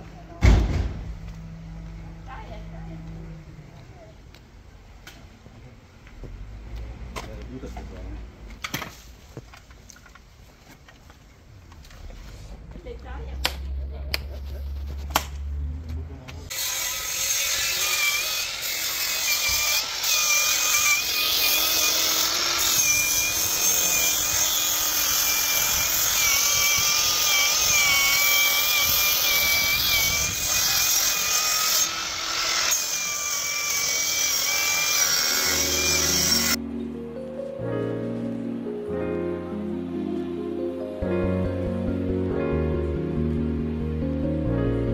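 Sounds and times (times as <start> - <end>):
angle grinder whining: 16.5 - 36.6.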